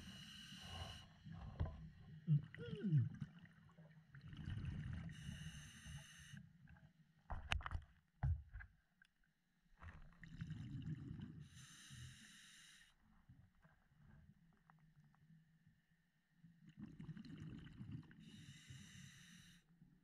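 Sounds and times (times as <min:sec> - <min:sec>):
exhaled bubbles rumbling: 0:01.3 - 0:05.1.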